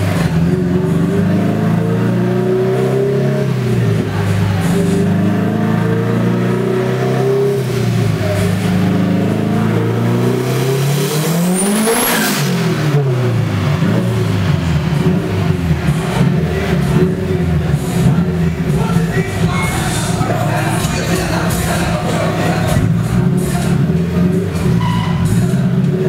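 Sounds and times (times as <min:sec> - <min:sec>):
turbocharged car engine revving: 0:00.0 - 0:26.0
turbo whistle: 0:24.8 - 0:25.4.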